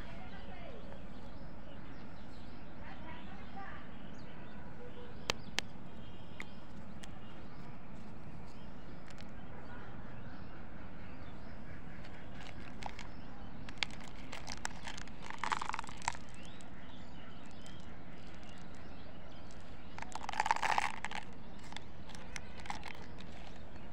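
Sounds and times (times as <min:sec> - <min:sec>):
steady background noise: 0:00.0 - 0:23.9
small plastic clicks: 0:08.0 - 0:09.3, 0:12.0 - 0:13.1, 0:13.7 - 0:16.7, 0:17.4 - 0:18.8, 0:19.4 - 0:23.7
foil lid crinkling: 0:12.0 - 0:13.1, 0:13.7 - 0:16.6, 0:17.5 - 0:18.8, 0:19.5 - 0:23.7.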